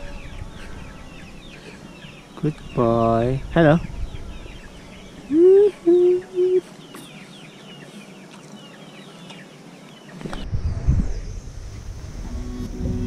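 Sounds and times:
small birds chirping: 0.0s - 11.9s
chicken clucking: 5.2s - 10.0s.

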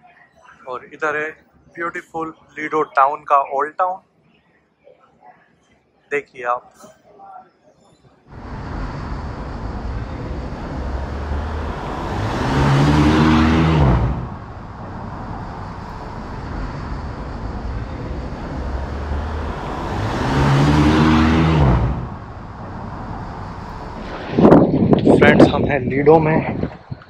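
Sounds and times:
traffic hum: 8.2s - 27.0s
vehicles driving past: 8.3s - 26.9s.

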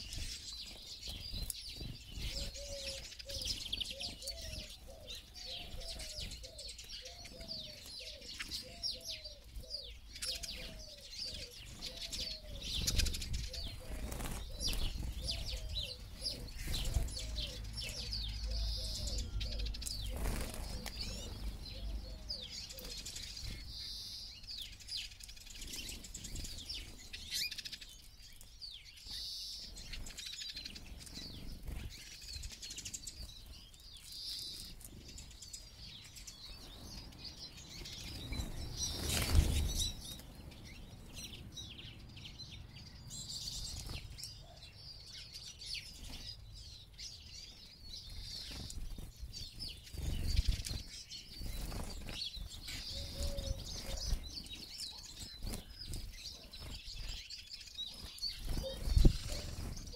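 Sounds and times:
birds twittering and chirping: 0.0s - 59.9s
wings fluttering: 11.4s - 17.4s, 18.9s - 22.0s, 37.8s - 40.6s, 48.2s - 57.3s, 57.9s - 59.9s.

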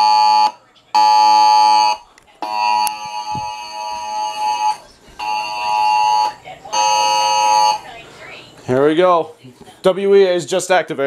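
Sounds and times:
harsh two-tone alarm: 0.0s - 8.0s.

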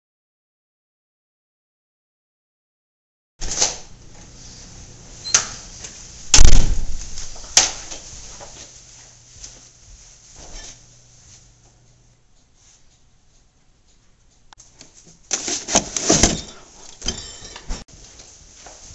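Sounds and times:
door banging shut: 6.4s - 7.0s.

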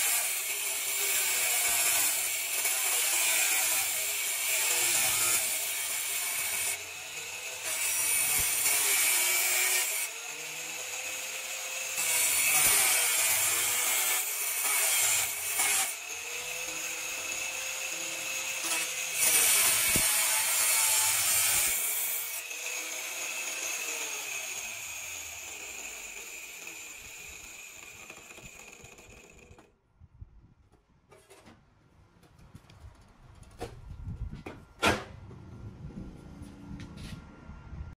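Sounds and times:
angle grinder cutting steel: 0.0s - 29.7s.

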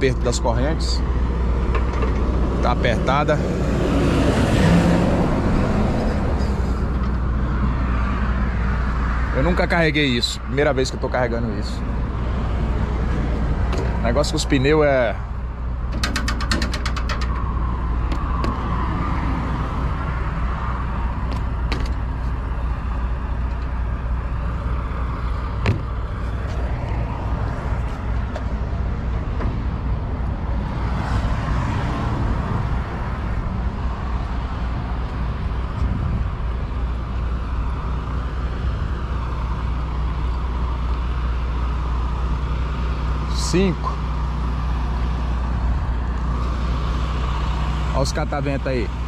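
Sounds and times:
diesel engine idling: 0.0s - 30.8s, 32.2s - 49.0s
passing road noise: 0.0s - 49.0s
rattle of clicks: 15.9s - 17.5s.

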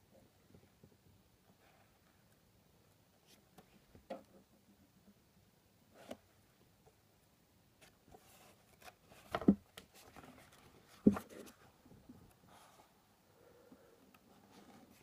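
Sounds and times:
book pages flipping: 7.8s - 11.7s.

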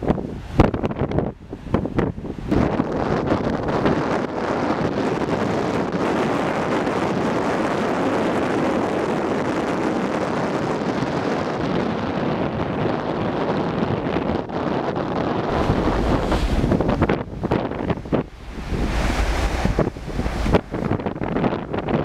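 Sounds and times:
wind buffeting microphone: 0.0s - 22.0s
rush of churned water: 15.4s - 22.0s.

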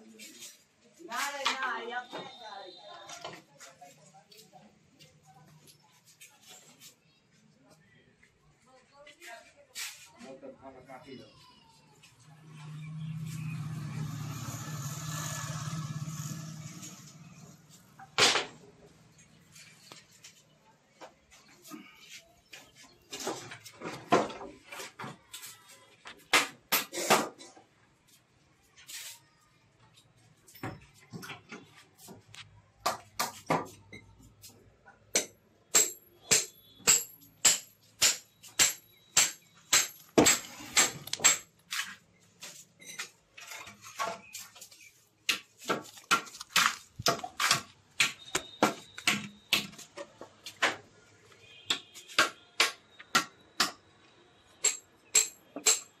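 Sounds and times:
hammer striking steel chisel: 35.1s - 41.5s, 54.6s - 55.9s.

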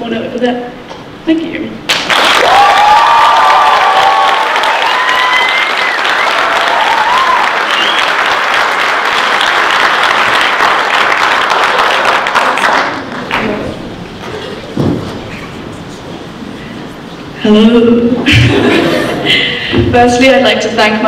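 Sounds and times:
audience applauding: 1.9s - 13.6s.

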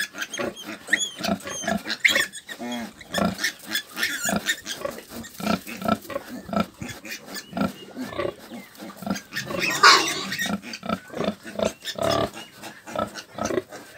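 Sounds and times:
sow grunting: 4.3s - 13.8s.

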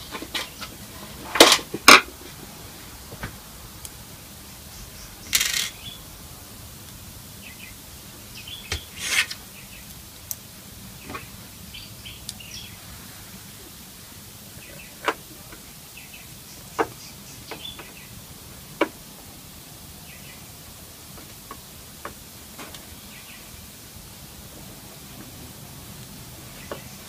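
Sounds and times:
steady background hiss: 0.0s - 27.0s.

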